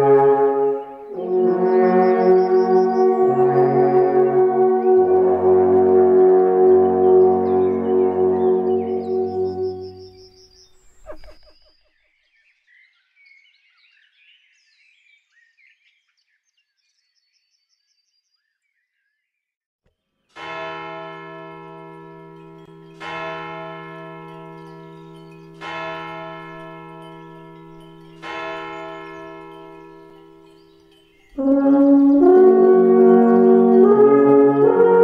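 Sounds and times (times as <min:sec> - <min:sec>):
faint high chirping: 0:08.8 - 0:12.2
bell ringing: 0:20.4 - 0:35.0.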